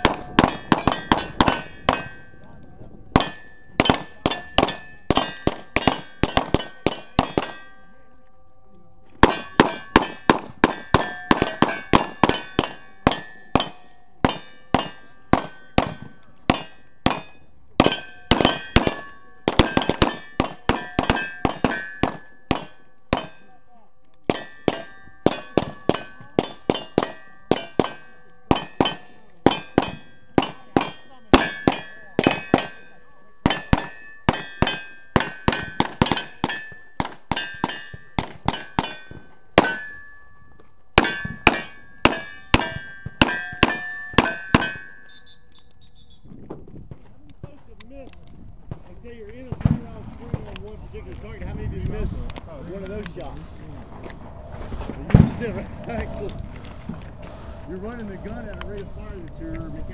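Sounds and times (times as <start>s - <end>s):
gunshots: 0.0s - 2.2s, 3.2s - 7.7s, 9.2s - 23.4s, 24.3s - 40.1s, 55.1s - 56.1s
bullets ringing on steel targets: 0.0s - 2.4s, 3.2s - 8.1s, 9.2s - 45.4s.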